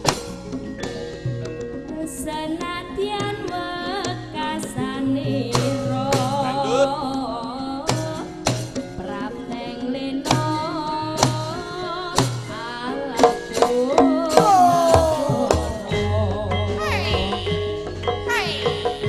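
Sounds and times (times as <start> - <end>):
woman singing: 1.9 - 19.0
hand drum strokes: 10.3 - 15.9
gamelan playing: 13.7 - 19.0.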